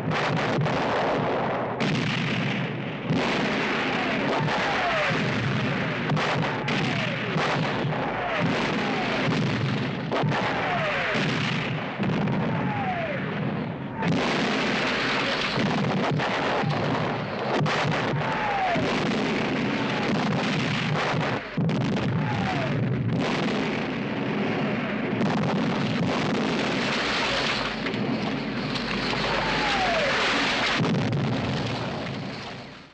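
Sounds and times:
bomb blasts: 1.8 - 32.9
falling debris: 14.3 - 18.8, 26.0 - 32.9.

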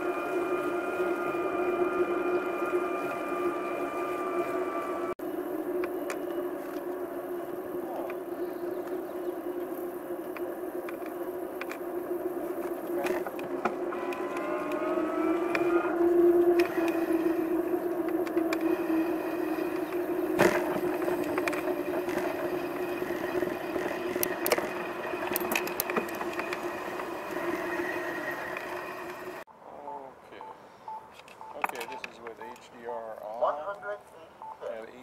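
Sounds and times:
engine speeding up: 0.0 - 29.5
steady hum: 0.0 - 29.5
scattered clicks: 7.9 - 9.0, 9.6 - 11.8, 16.4 - 29.4, 30.4 - 32.8.

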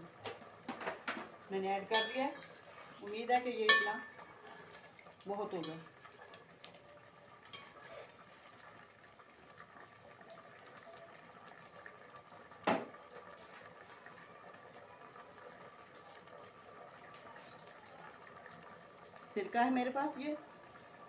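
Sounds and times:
rice water bubbling: 1.3 - 21.0
metal spoon clacking on stovetop: 1.9 - 2.5, 3.7 - 4.3.

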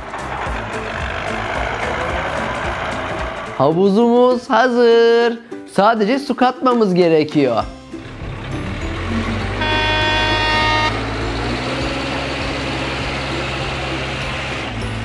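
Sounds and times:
truck engine rumbling: 0.0 - 4.2, 7.7 - 15.0
truck horn honk: 9.3 - 13.0.

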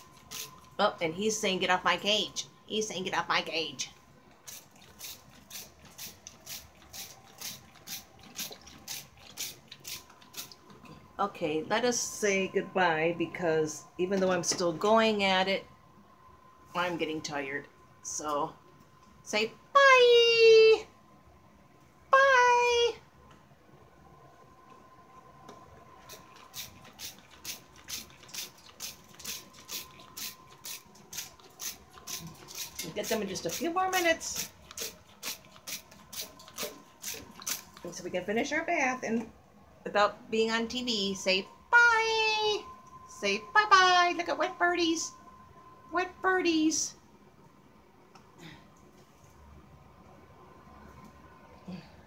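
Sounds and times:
spray bottle squirting: 4.5 - 10.6, 26.1 - 33.7, 34.4 - 37.8.

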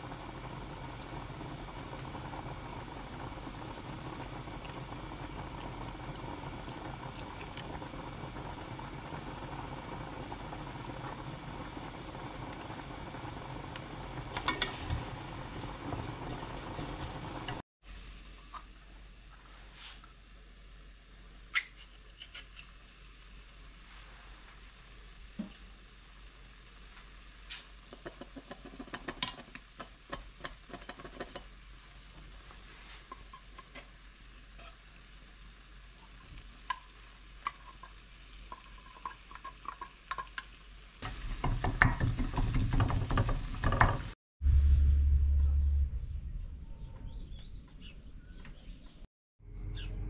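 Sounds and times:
sauce sizzling in a pan: 0.0 - 17.6, 22.7 - 44.2
spoon scraping a pan: 34.5 - 34.9.

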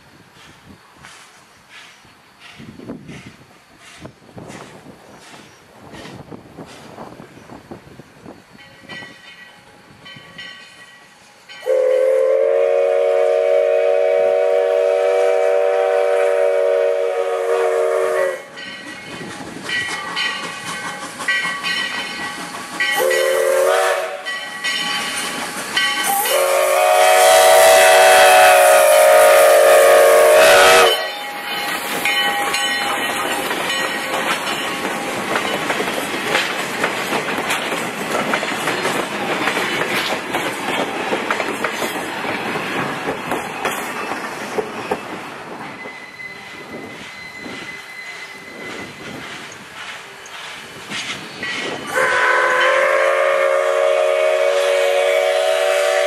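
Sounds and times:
train wheels clickety-clack: 0.2 - 56.0
steam locomotive whistle blasts: 11.6 - 18.6, 22.8 - 24.8, 25.8 - 33.8, 45.8 - 49.0, 51.8 - 56.0.

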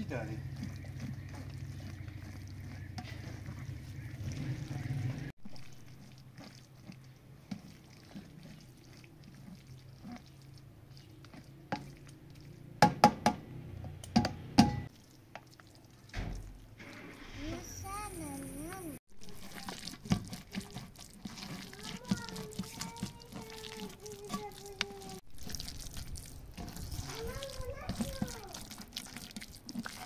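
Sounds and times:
spoon scraping fruit pulp: 0.0 - 12.8, 19.2 - 30.0
wet squelching: 0.0 - 12.8, 14.8 - 30.0.

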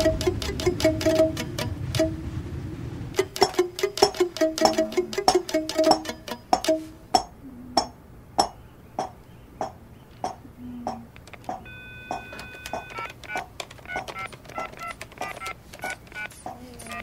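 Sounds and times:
mortar and pestle pounding: 0.0 - 1.6, 3.2 - 9.8
phone keypad beeps: 11.6 - 17.0
telephone dial tone: 11.6 - 17.0.

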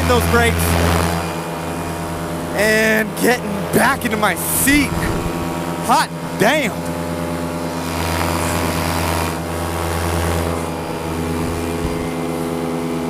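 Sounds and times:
paramotor engine and propeller: 0.0 - 13.0
rush of air: 4.4 - 5.8.

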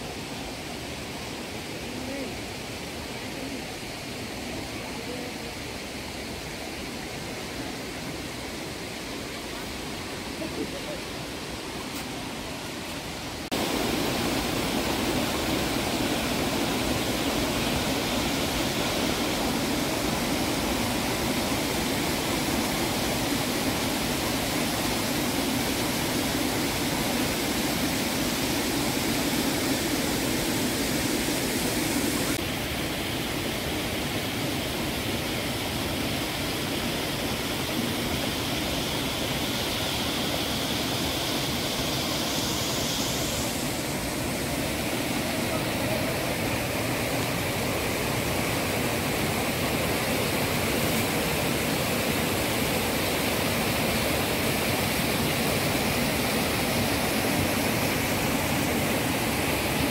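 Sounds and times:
waterfall rushing: 0.0 - 59.9.

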